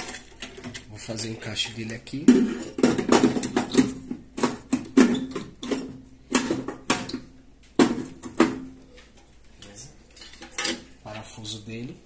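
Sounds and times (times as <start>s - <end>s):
metallic clanks and scrapes: 9.1s - 11.0s.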